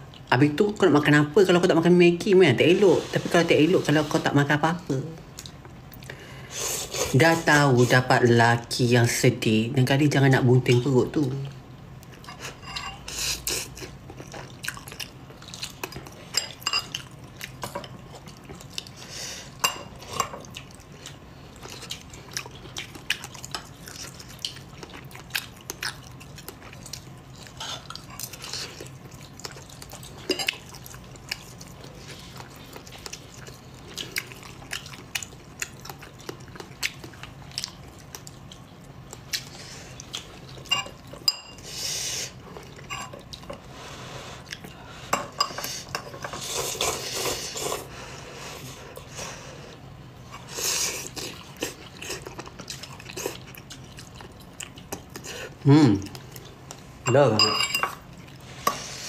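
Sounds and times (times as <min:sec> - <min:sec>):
low steady hum: 0:00.0 - 0:59.0
chewing: 0:12.0 - 0:19.0, 0:19.9 - 0:41.3, 0:50.2 - 0:56.9.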